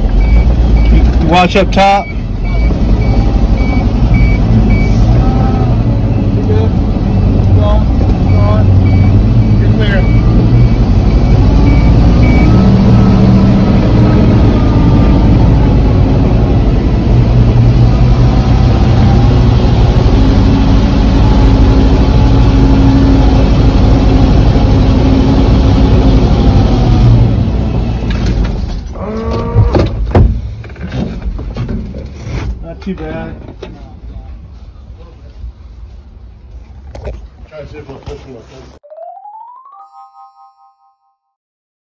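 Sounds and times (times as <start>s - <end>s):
truck engine running: 0.0s - 28.9s.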